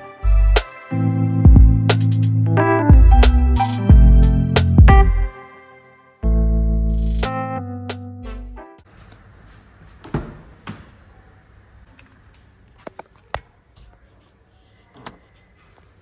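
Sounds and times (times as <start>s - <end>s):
background music: 0.0s - 8.8s.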